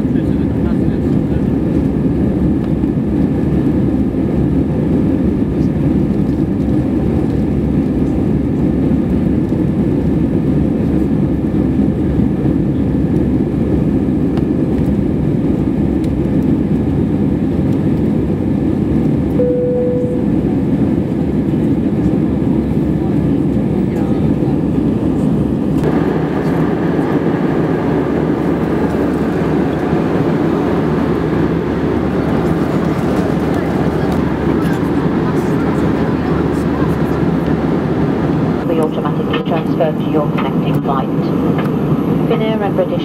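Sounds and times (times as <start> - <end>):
airplane cabin engine roar: 0.0 - 43.0
short steady tone: 19.4 - 20.4.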